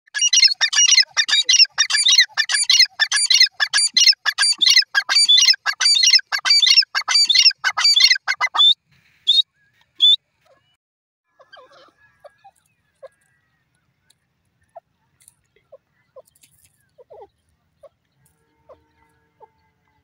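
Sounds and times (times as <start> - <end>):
francolin calling: 0.2 - 9.4.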